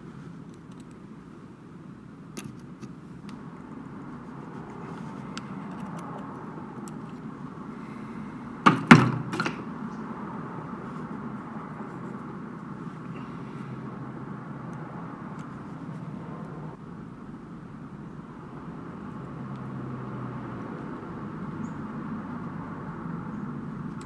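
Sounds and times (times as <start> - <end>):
sharp knocks: 8.6 - 9.6.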